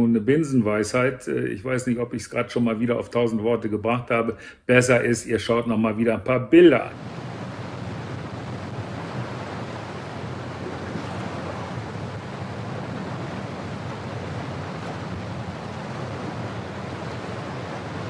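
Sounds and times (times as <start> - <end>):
water rushing: 6.9 - 18.0
wind: 6.9 - 18.0.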